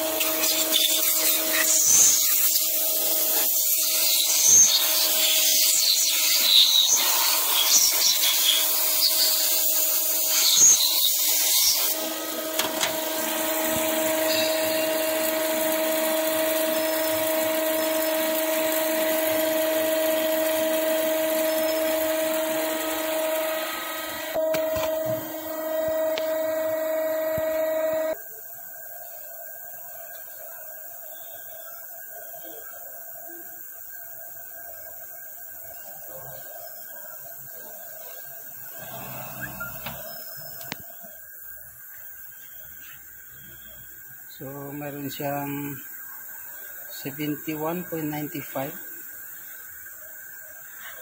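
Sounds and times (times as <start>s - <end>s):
grinding wheel hissing on metal: 0.0s - 28.2s, 38.6s - 40.8s, 44.3s - 49.7s
spindle whine: 11.7s - 28.2s, 38.6s - 40.8s
motor hum: 11.8s - 28.2s, 38.7s - 40.8s.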